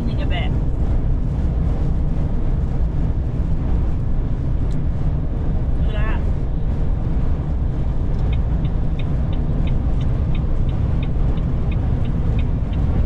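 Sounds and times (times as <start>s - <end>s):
engine and road rumble: 0.0s - 13.0s
turn signal ticking: 7.6s - 13.0s.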